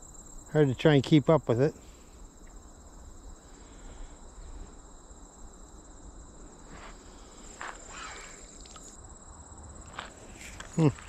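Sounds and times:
crickets trilling: 0:00.0 - 0:11.0
faint rustles: 0:06.4 - 0:09.0, 0:09.8 - 0:11.0.

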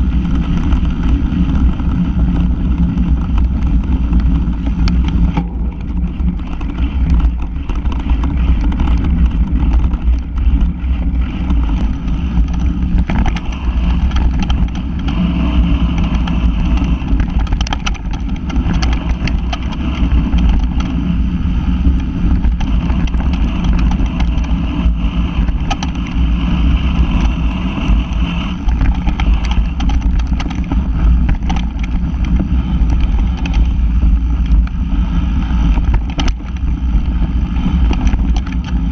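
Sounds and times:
vehicle ride rumble: 0:00.0 - 0:38.9
wind on microphone: 0:00.0 - 0:38.9.

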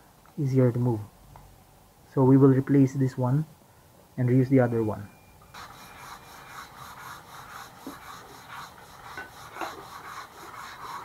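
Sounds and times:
tie rod joint rubbing and scraping: 0:05.7 - 0:11.0.

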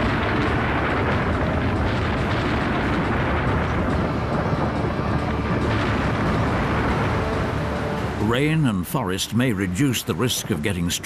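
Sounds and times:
rolling thunder: 0:00.0 - 0:08.4
heavy rain: 0:00.0 - 0:11.0.

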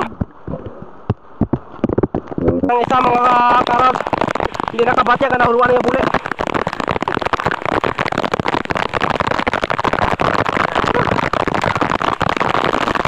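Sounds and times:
heavy rain: 0:02.7 - 0:13.0.

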